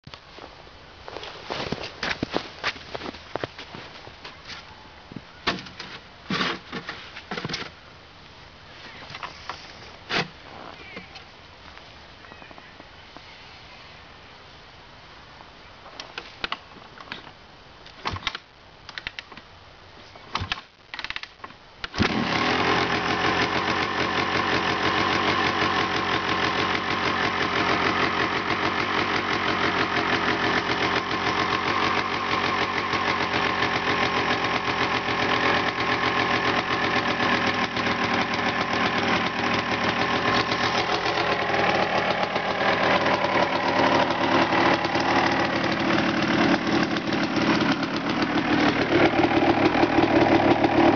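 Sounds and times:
motorcycle kick-start kicks: 20.3s - 50.9s
two-stroke engine running: 22.0s - 50.9s.

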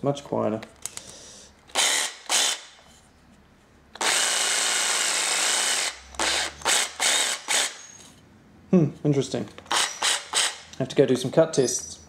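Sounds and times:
cordless jigsaw running: 1.7s - 2.7s, 4.0s - 7.8s, 9.7s - 10.6s.

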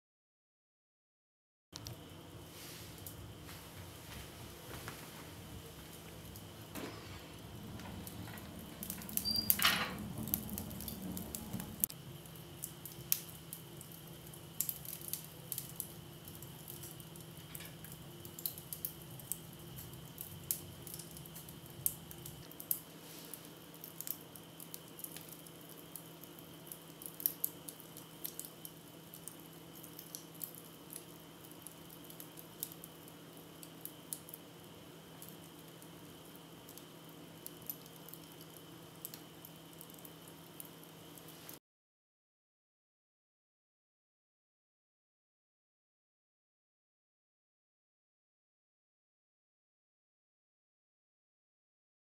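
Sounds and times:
faint steady hum: 1.8s - 41.6s
wood fire crackling in stove: 1.8s - 41.6s.

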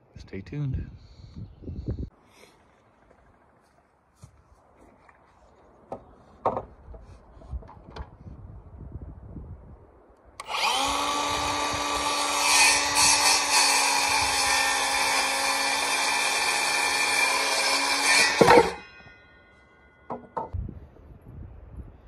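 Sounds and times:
circular saw cutting wood: 10.4s - 19.3s.

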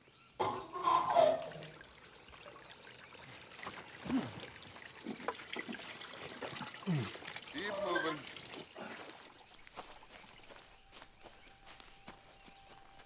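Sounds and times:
water trickling and splashing: 0.4s - 13.0s.

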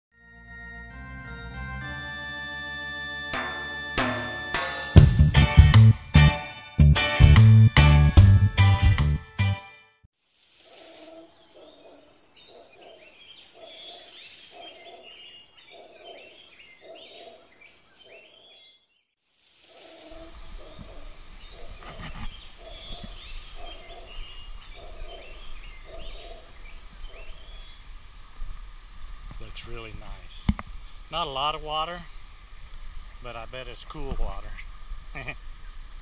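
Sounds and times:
birds chirping and twittering: 10.5s - 36.0s
low bird hoots: 19.8s - 27.5s.

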